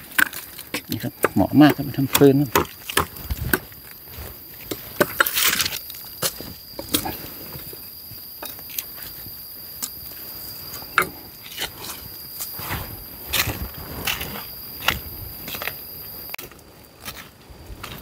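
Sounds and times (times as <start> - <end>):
dry leaves and twigs crunching: 0.0 - 18.0
leaves rustling: 0.0 - 18.0.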